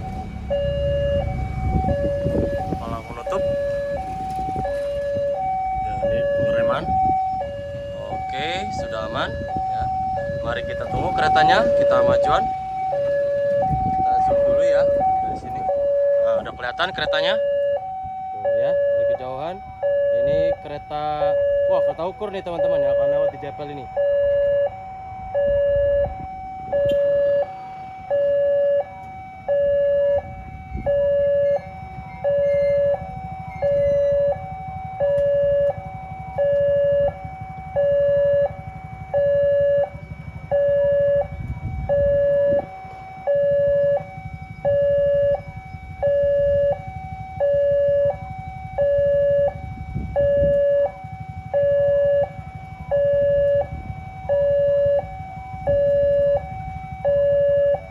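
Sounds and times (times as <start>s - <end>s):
two-tone crossing warning alarm: 0.0s - 57.9s.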